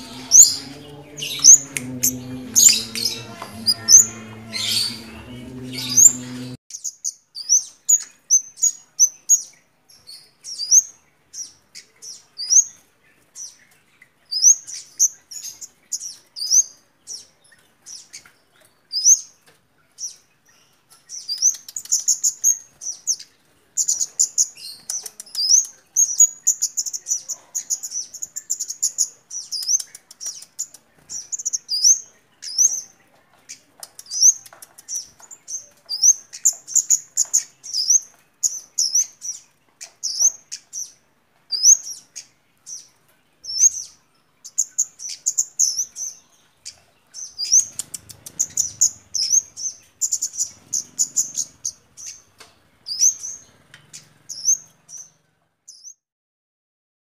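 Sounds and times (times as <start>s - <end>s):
songbird twittering: 23.8s - 56.0s.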